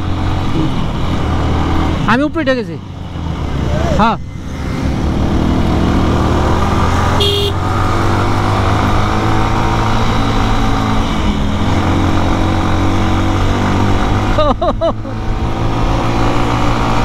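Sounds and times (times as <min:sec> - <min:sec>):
horn toot: 0:07.2 - 0:07.6.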